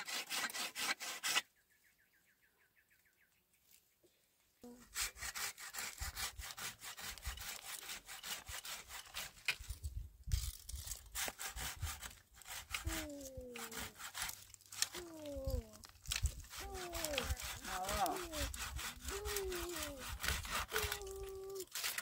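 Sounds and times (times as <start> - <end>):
hand saw cutting branch: 0.0 - 1.5, 4.6 - 22.0
person calling out: 12.8 - 14.0, 14.9 - 15.8, 16.6 - 21.7.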